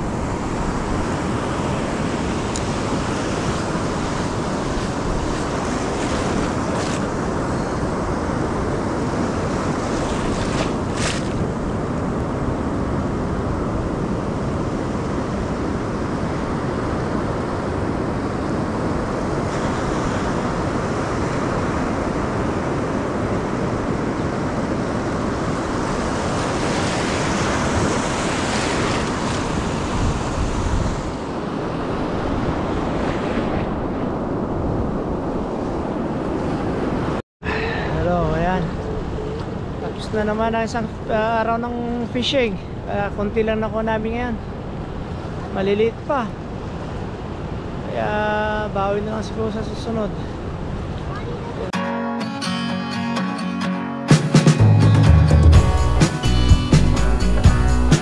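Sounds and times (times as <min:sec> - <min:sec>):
wind buffeting microphone: 0:00.0 - 0:45.7
ocean surf washing on beach: 0:00.0 - 0:51.9.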